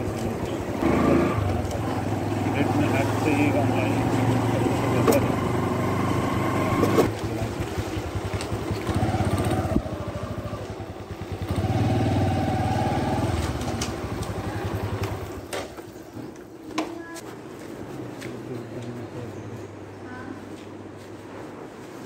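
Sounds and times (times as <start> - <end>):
motorcycle engine revving: 0.0 - 15.5.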